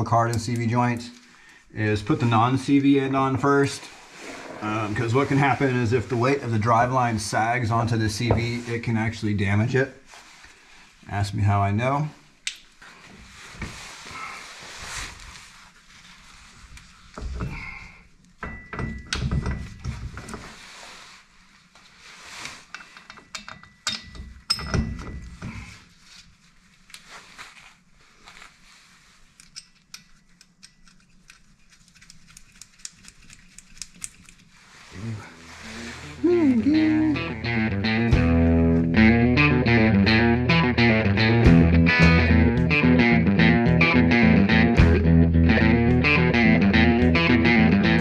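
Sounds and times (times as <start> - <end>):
metal clinks and taps: 22.7 - 25.2.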